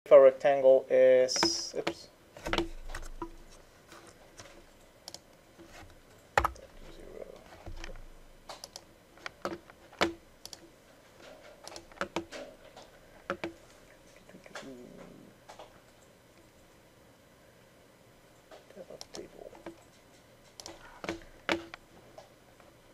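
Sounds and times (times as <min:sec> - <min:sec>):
computer mouse and keyboard clicks: 0:01.4 - 0:13.6, 0:14.2 - 0:16.6, 0:18.4 - 0:22.3.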